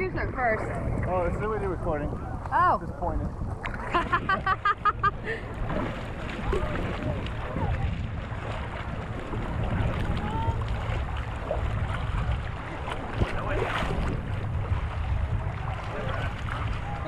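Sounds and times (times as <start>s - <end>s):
seawater sloshing and lapping: 0.0s - 17.0s
wind rumble on microphone: 0.0s - 17.0s
small splashes: 3.5s - 17.0s.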